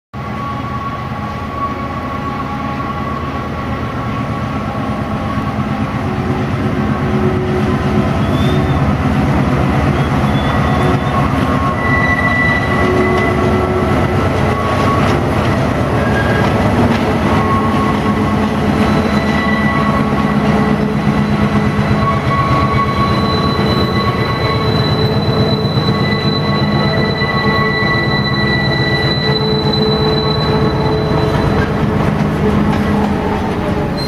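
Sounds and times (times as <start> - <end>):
diesel locomotive rumbling: 0.2 - 34.0
wheels squealing: 7.2 - 34.0.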